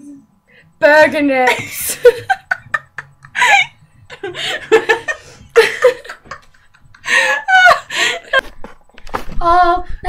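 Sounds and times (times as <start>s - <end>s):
women laughing: 1.5s - 8.5s.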